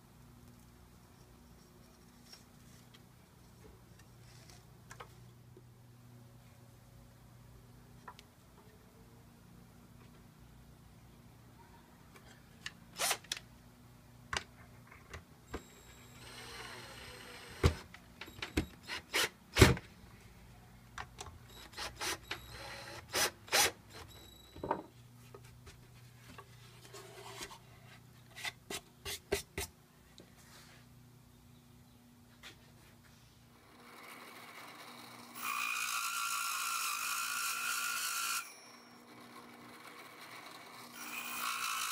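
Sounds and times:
power drill driving screws: 13.0s - 13.4s, 15.6s - 19.8s, 21.6s - 24.2s, 34.6s - 38.5s, 40.2s - 41.9s.

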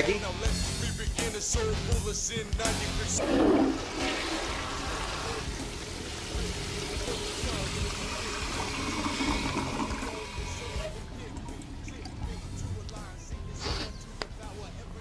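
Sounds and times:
tap water running into sink: 3.2s - 12.4s.

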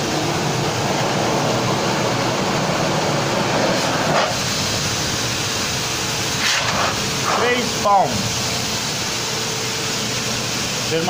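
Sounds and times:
pet grooming blower running: 0.0s - 5.8s.

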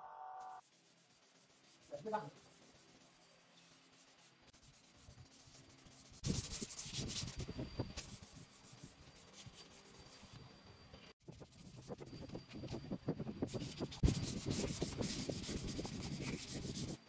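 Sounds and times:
sandpaper rubbing on wood: 0.6s - 10.2s, 13.5s - 17.0s.

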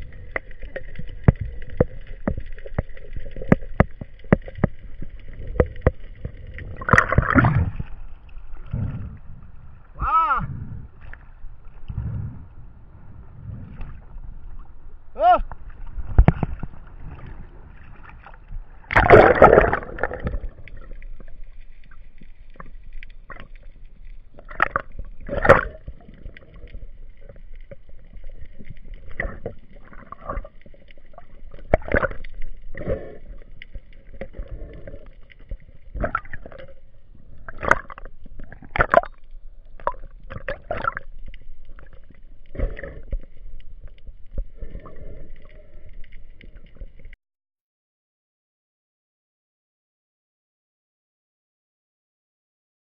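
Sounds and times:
water sloshing and splashing: 0.0s - 9.2s, 15.5s - 47.2s
loud splash: 18.9s - 20.4s.

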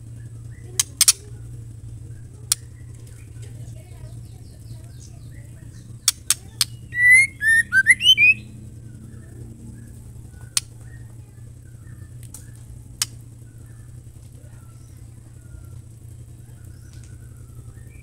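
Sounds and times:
sharp clicks: 0.8s - 1.2s, 2.5s - 3.3s, 6.0s - 8.4s, 10.4s - 11.0s, 12.2s - 13.2s
bird whistling quick notes: 6.9s - 8.4s.

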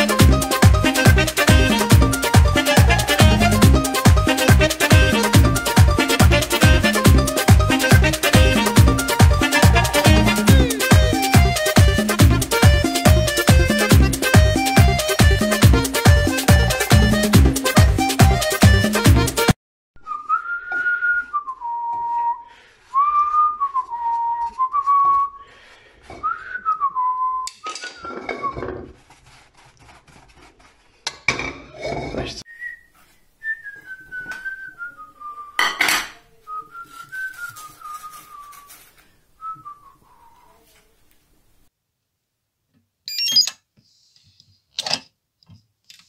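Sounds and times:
person whistling a slow melody: 20.0s - 25.4s, 26.2s - 28.5s, 32.5s - 35.6s, 36.5s - 38.7s
spatula scraping a frying pan: 28.0s - 32.4s.

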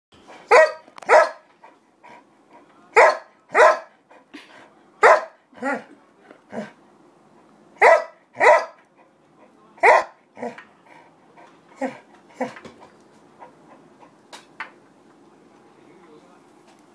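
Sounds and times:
dog barking: 0.5s - 1.4s, 3.0s - 3.9s, 5.0s - 5.8s, 7.8s - 8.8s, 9.8s - 10.6s.

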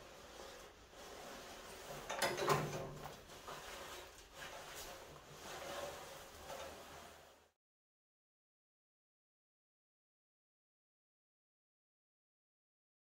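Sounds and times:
bristle brush scrubbing rusty metal: 0.0s - 7.5s.

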